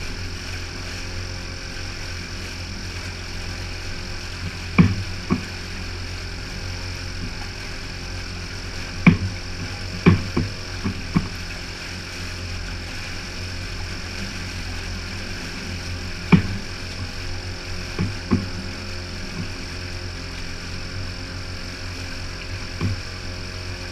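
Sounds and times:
outboard motor humming: 0.0 - 23.9
sharp short knocks: 4.4 - 5.5, 9.0 - 11.4, 16.3 - 16.7, 18.0 - 18.6, 22.8 - 23.0.

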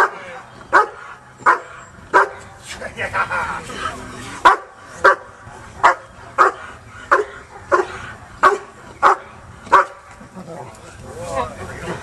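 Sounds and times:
dog barking: 0.0 - 2.4, 4.4 - 10.0.

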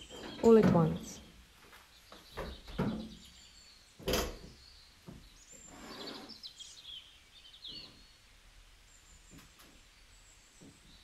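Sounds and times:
bird chirps: 1.9 - 8.3.

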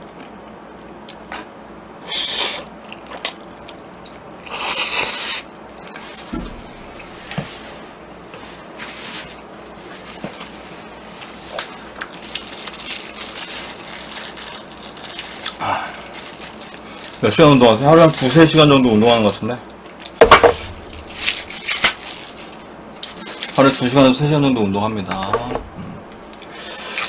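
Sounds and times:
person slurping noodles: 26.5 - 27.0.

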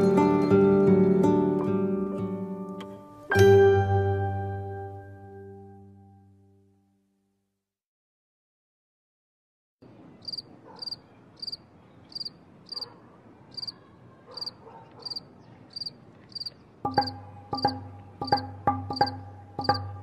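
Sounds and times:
music with ringing struck notes: 3.3 - 6.2, 16.9 - 20.0
cricket chirping: 10.2 - 12.9, 13.5 - 13.8, 14.4 - 19.9.

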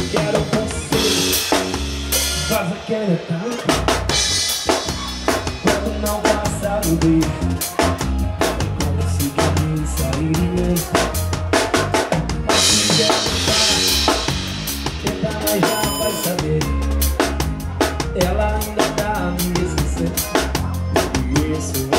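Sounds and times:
live band playing: 0.0 - 21.9
low bass line: 5.0 - 21.9.

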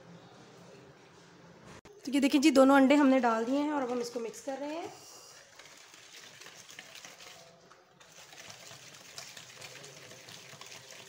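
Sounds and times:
whisk beating batter in plastic bowl: 3.3 - 11.0.

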